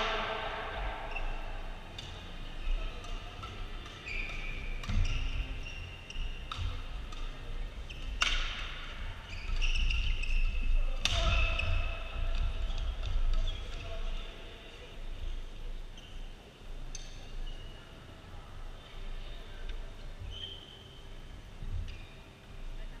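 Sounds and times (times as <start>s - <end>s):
rackets striking shuttlecock: 0.0s - 2.3s
shoes squeaking on court: 3.8s - 6.7s, 9.2s - 10.8s, 20.2s - 21.0s.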